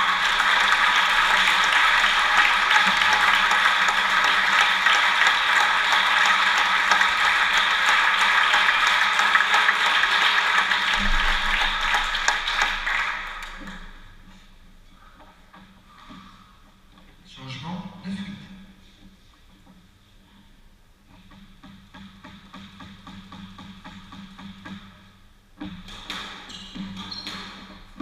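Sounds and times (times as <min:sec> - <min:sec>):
audience applauding: 0:00.0 - 0:14.1.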